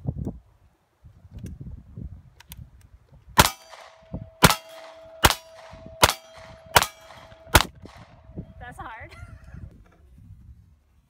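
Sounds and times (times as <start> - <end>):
steel target ringing: 3.4 - 7.9
gunshots: 3.4 - 8.2.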